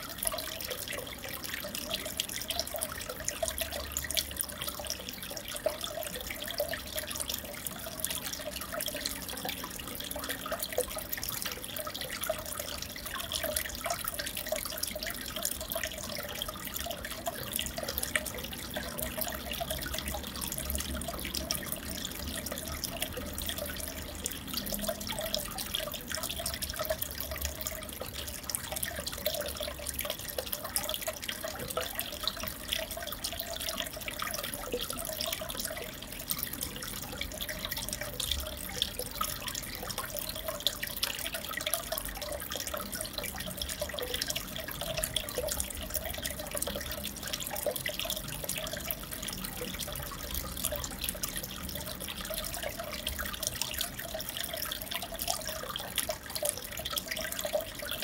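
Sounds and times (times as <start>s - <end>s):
aquarium water bubbling: 0.0s - 58.0s.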